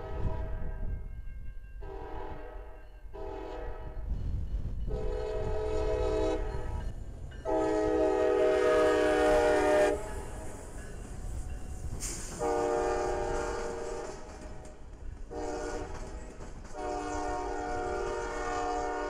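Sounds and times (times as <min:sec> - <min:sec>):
locomotive air horn blasts: 0:00.0 - 0:00.7, 0:01.8 - 0:04.0, 0:04.9 - 0:06.8, 0:07.4 - 0:10.4, 0:12.4 - 0:14.4, 0:15.3 - 0:16.1, 0:16.7 - 0:19.0
passing train rumble: 0:00.0 - 0:19.0.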